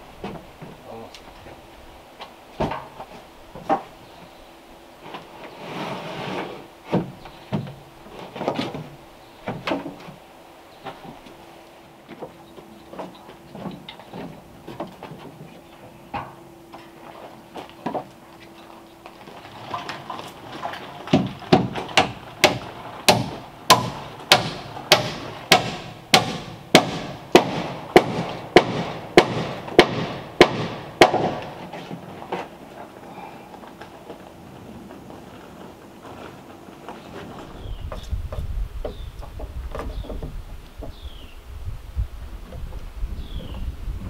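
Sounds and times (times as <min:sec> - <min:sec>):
hammer striking: 0:21.2 - 0:31.5.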